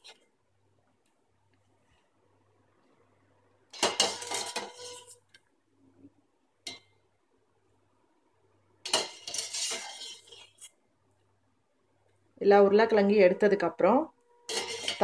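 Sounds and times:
metal skimmer clinking on a pot: 14.5 - 15.0.

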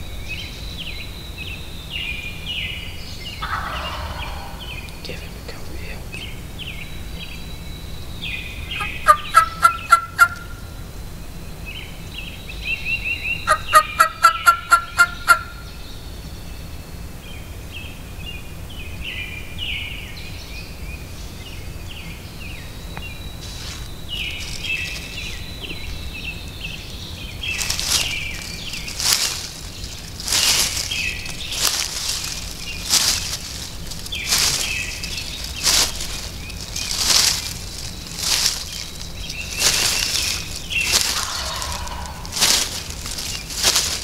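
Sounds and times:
songbirds chirping: 0.0 - 44.0
turkey gobbling: 3.4 - 5.0, 8.7 - 10.7, 13.4 - 15.7, 27.5 - 44.0.

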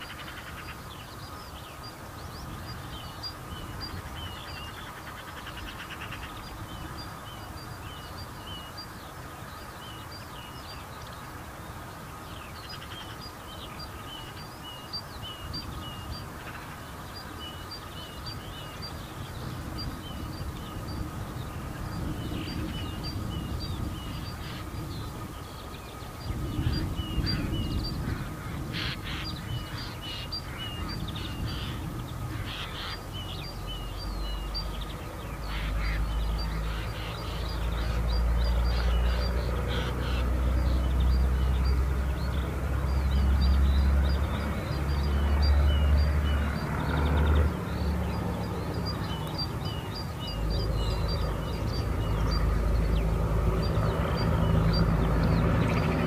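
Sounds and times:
birds chirping: 0.0 - 56.0
railbus diesel engine passing: 33.4 - 56.0.

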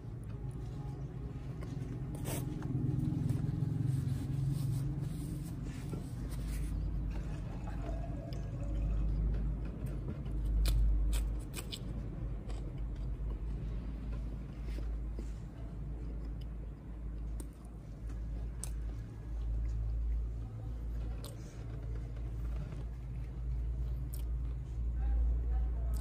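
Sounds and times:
close chewing mouth sounds: 5.8 - 20.2, 21.0 - 24.6.

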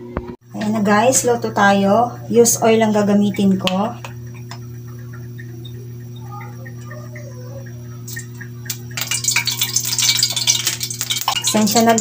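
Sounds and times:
steady low hum: 0.0 - 12.0
oil crackling in hot wok: 8.1 - 12.0.

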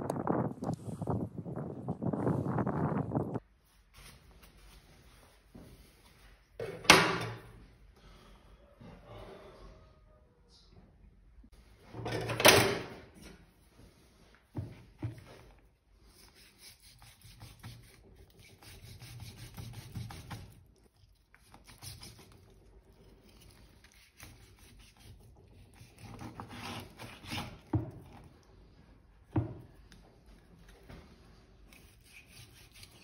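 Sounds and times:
knife sawing through meat: 16.2 - 20.6, 21.4 - 22.5, 23.3 - 27.7, 31.7 - 33.0.

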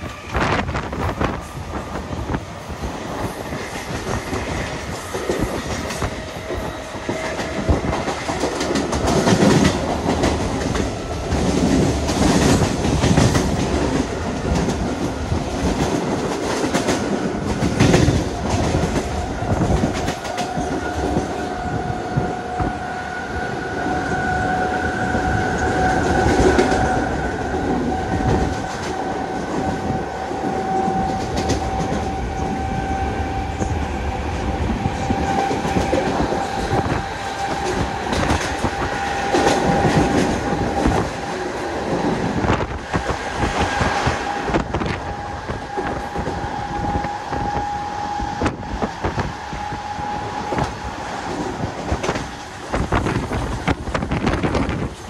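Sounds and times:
train wheels clattering over rail joints: 3.2 - 21.3, 35.2 - 47.6.

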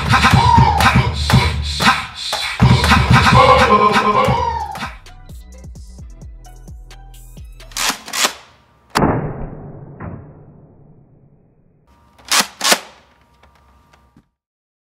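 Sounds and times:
background music with beat: 0.0 - 7.8.

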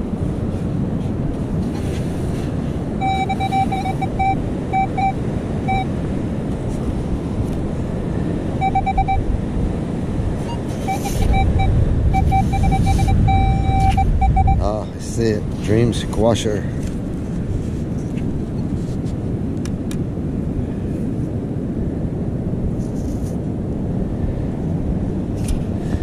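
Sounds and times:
wind and surf rushing: 0.0 - 26.0
metal detector beeps: 3.0 - 5.9, 8.6 - 9.2, 10.4 - 14.7.

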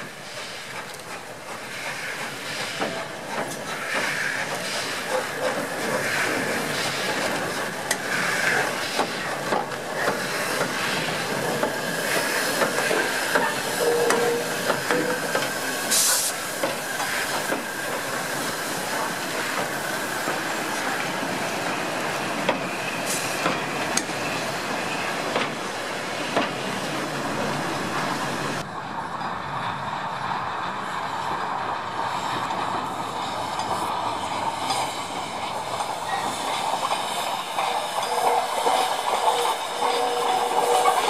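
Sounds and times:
train wheels clicking over rail joints: 0.0 - 28.1, 31.8 - 41.0
steam hiss: 0.0 - 28.6, 33.1 - 41.0.

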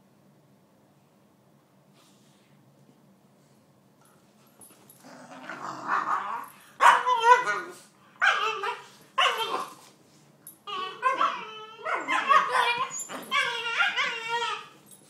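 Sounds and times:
puppy whining and yelping: 5.6 - 9.8, 10.5 - 15.0
puppy barking: 6.3 - 9.8, 10.9 - 14.6.

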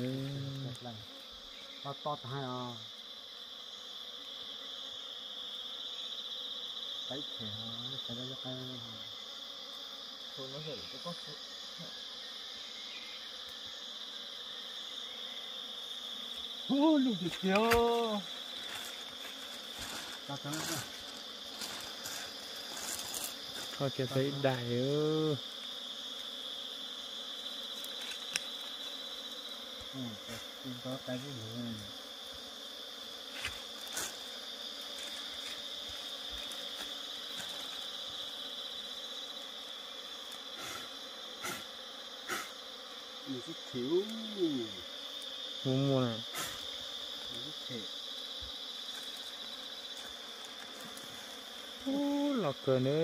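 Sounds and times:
insect chorus shrilling: 0.0 - 53.0.

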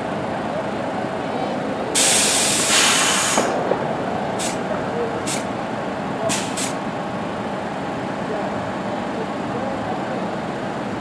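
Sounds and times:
train brakes hissing air: 2.0 - 3.6, 4.4 - 4.6, 5.2 - 5.5, 6.3 - 6.8.

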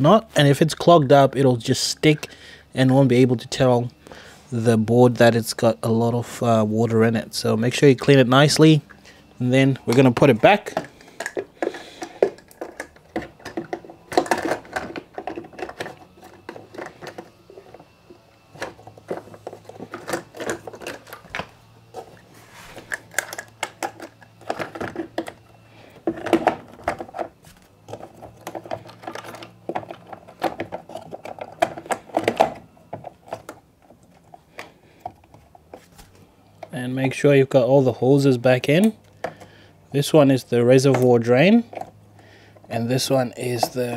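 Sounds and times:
plastic clicks knocks and rattles: 9.9 - 17.8, 27.9 - 35.4.

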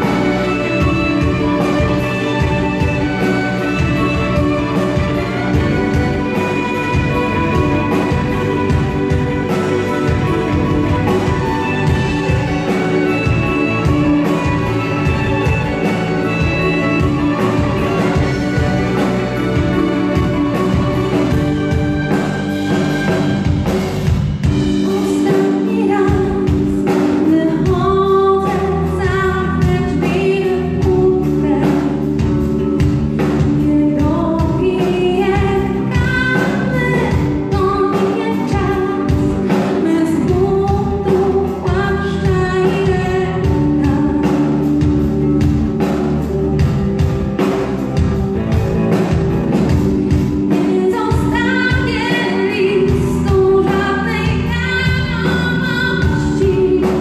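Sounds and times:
rock band playing: 0.0 - 57.0
woman singing: 24.7 - 45.1, 50.5 - 57.0.

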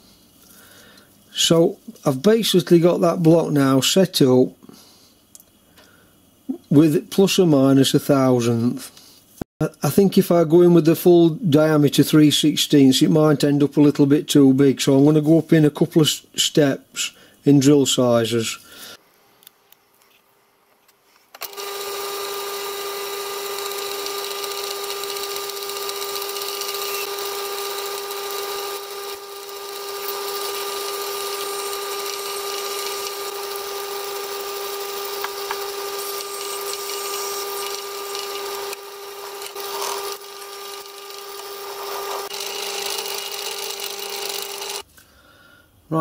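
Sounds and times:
drill cutting steel: 21.4 - 44.8
lathe whine: 21.4 - 44.8.

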